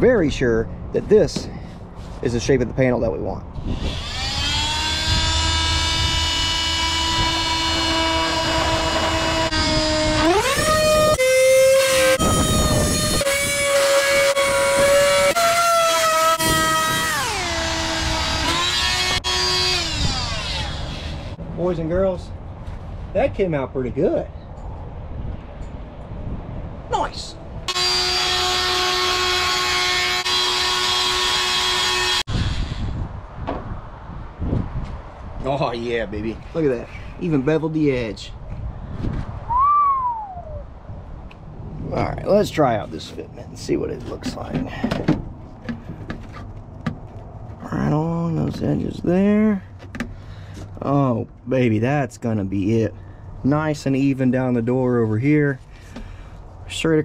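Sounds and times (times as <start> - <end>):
power cutting tool whining: 3.6 - 21.4, 27.7 - 33.0
rasping cutting noise: 3.6 - 21.4, 27.7 - 33.1.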